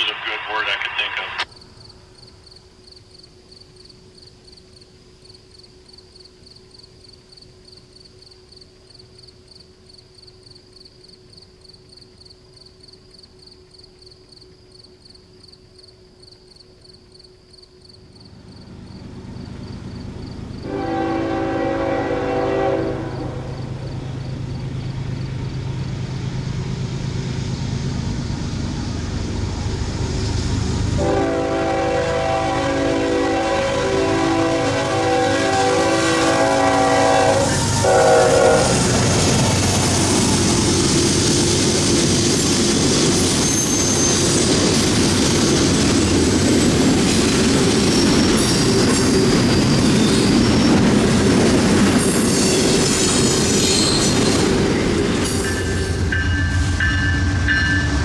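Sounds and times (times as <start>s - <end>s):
locomotive engine droning: 18.0s - 58.0s
train horn blasts: 20.6s - 23.7s, 31.0s - 38.9s
wheels clacking on rails: 34.0s - 58.0s
high wheel squeal: 41.6s - 44.6s, 47.7s - 50.9s, 52.0s - 58.0s.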